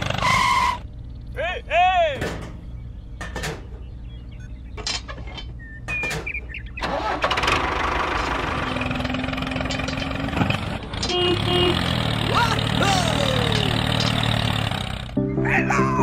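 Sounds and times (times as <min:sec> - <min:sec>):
small engine running: 0:06.9 - 0:15.2
metal roller clicks and knocks: 0:08.9 - 0:11.2.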